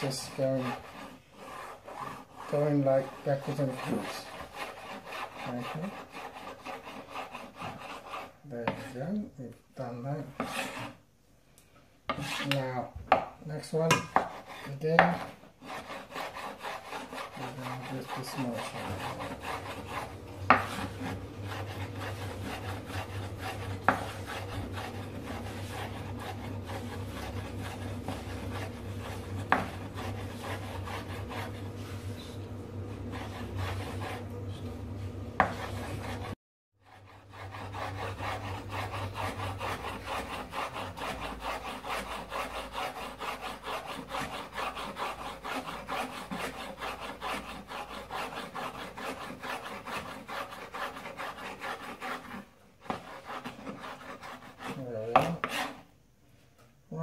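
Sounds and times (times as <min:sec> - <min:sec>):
knife slicing on wooden board: 0:20.0 - 0:21.2.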